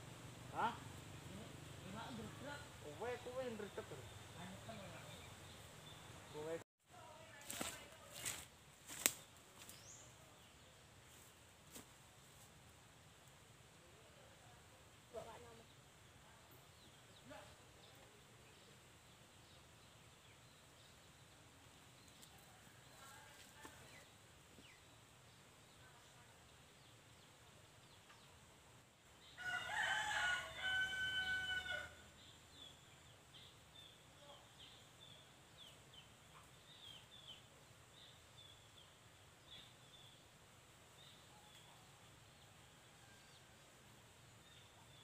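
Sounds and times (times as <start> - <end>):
rooster crowing: 29.4 - 32.1.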